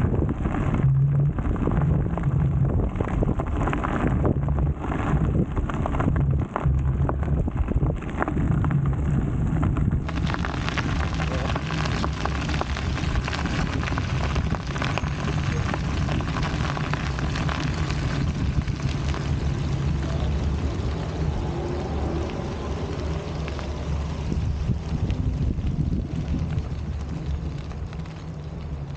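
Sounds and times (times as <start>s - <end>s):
wind rumbling on microphone: 0.0s - 28.9s
tyres hissing on wet pavement: 10.0s - 28.9s.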